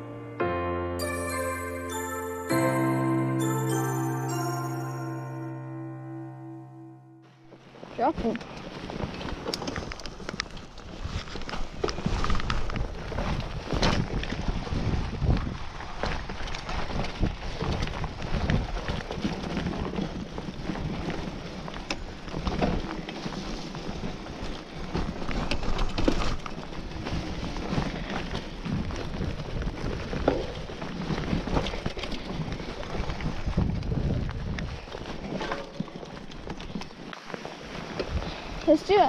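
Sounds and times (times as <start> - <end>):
bike tyres rolling over dirt: 7.6 - 39.0
wind rumbling on microphone: 8.2 - 38.6
bike knocks and rattles: 35.0 - 36.8.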